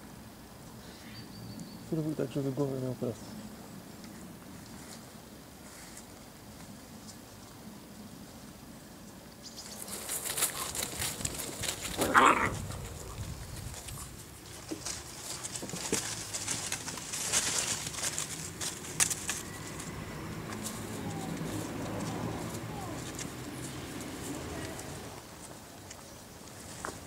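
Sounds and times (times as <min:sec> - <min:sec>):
puppies scuffling in leaves: 0:09.5 - 0:27.0
puppy yelp: 0:12.0 - 0:12.6, 0:20.8 - 0:23.2.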